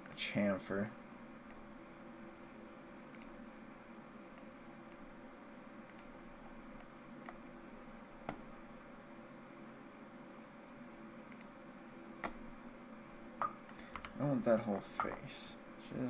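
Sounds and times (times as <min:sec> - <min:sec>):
faint room hum: 0:00.0 - 0:16.0
computer mouse clicking: 0:03.1 - 0:03.4, 0:04.3 - 0:05.1, 0:05.8 - 0:08.5, 0:11.3 - 0:11.5, 0:12.2 - 0:12.4, 0:13.4 - 0:14.2.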